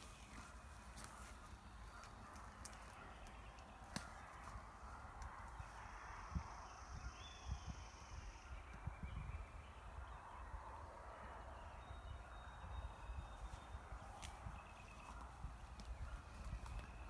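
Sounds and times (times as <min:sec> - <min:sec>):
soft rustle: 0:00.0 - 0:03.0
wind buffeting microphone: 0:03.4 - 0:17.0.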